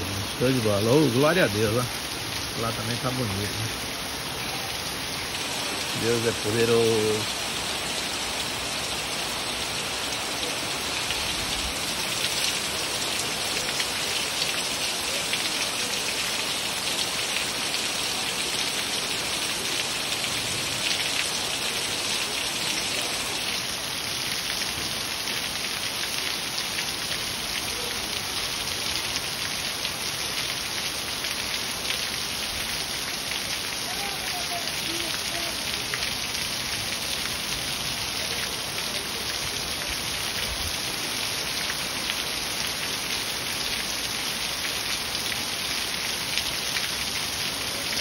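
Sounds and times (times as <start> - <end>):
water pouring off roof edge: 0.0 - 7.5
heavy rain falling: 0.0 - 48.0.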